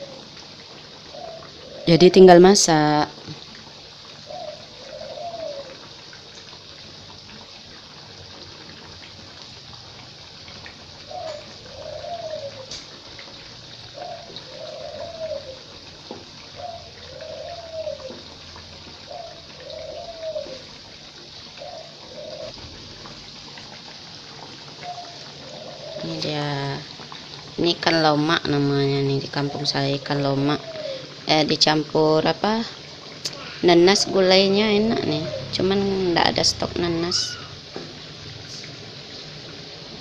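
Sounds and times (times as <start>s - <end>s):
dove cooing: 0.0s - 0.4s, 1.0s - 2.3s, 4.1s - 6.0s, 11.0s - 23.2s, 24.3s - 31.3s, 32.5s - 36.2s
oil sizzling in a wok: 0.0s - 40.0s.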